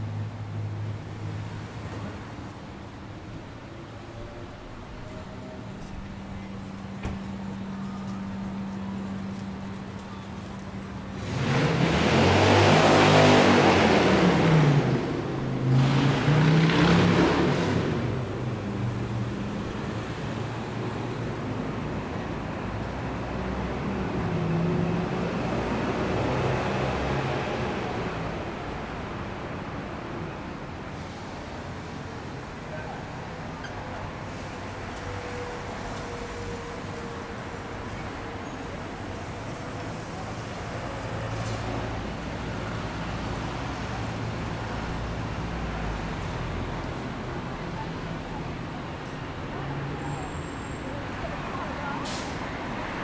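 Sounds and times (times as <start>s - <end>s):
hum of passing cars: 0.0s - 53.0s
road noise: 0.0s - 53.0s
vehicle engine: 5.8s - 22.2s.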